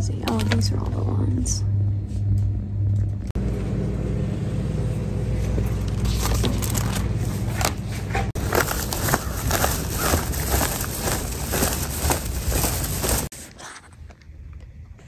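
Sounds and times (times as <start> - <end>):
shopping cart rolling: 5.4 - 13.3
wire basket rattling: 8.4 - 13.3.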